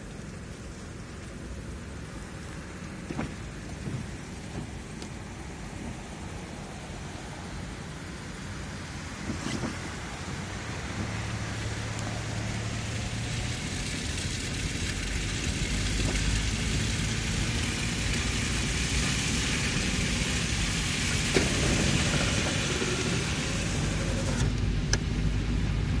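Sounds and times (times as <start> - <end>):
tyre and road noise: 0.0 - 26.0
car engine running: 9.1 - 26.0.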